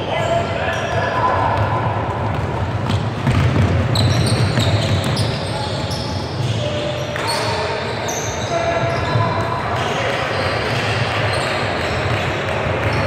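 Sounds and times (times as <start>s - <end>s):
basketball bouncing: 1.6s - 5.3s
sneakers squeaking on gym floor: 2.3s - 12.2s.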